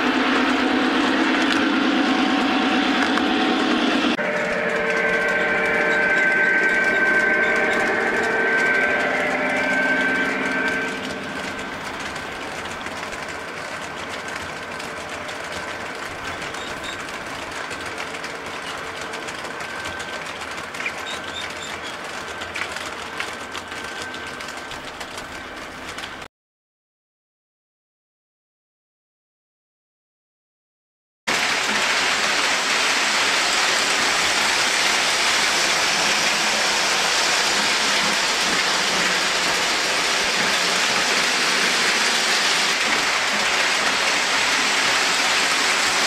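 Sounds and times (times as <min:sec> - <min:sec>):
cars rolling on track: 0:00.0 - 0:26.3, 0:31.3 - 0:46.0
model train motor whine: 0:04.2 - 0:26.1, 0:31.5 - 0:46.0.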